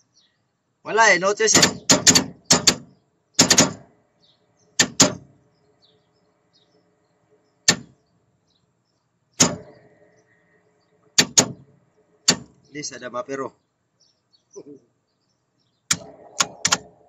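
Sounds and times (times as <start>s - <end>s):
sharp knocks with ringing: 1.5s - 3.8s, 4.8s - 5.3s, 7.7s - 7.9s, 9.4s - 9.8s, 12.3s - 12.5s.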